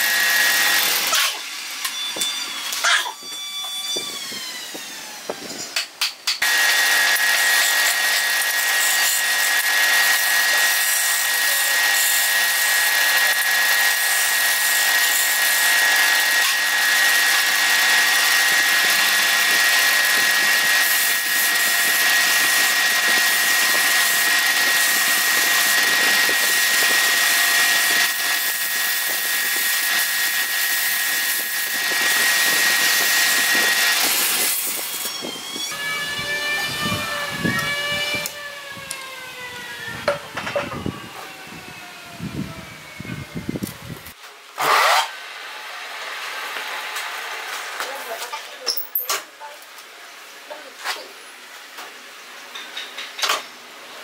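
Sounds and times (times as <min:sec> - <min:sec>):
wood lathe whining: 0:00.0 - 0:05.6, 0:06.4 - 0:44.0.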